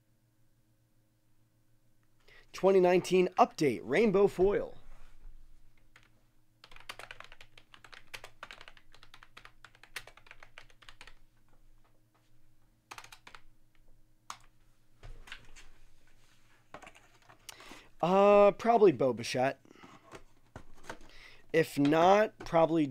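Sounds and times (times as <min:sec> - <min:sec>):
computer keyboard typing: 0:05.9 - 0:11.2, 0:12.9 - 0:13.5, 0:14.3 - 0:14.5.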